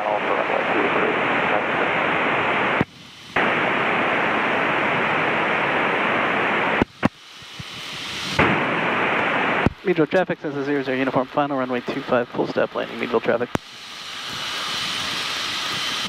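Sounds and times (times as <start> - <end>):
radio static hiss: 0.0 - 16.0
radio click: 13.5 - 13.7.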